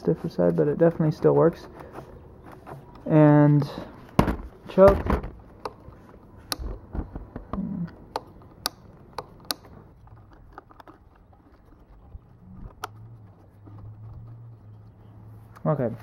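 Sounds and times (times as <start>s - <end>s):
plastic and metal parts clicking: 1.6s - 14.4s.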